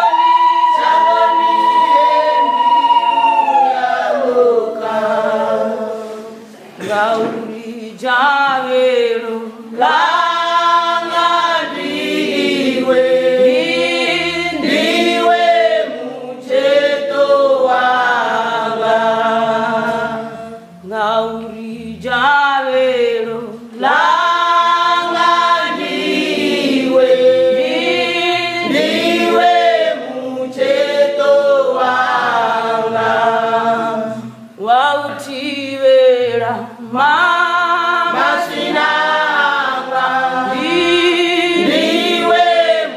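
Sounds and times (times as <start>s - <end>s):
choir singing a cappella: 0.0s - 42.9s.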